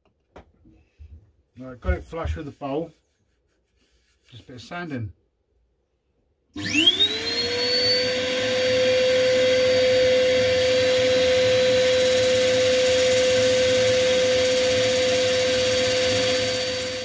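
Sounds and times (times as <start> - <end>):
drill motor whine: 6.6 - 17.0.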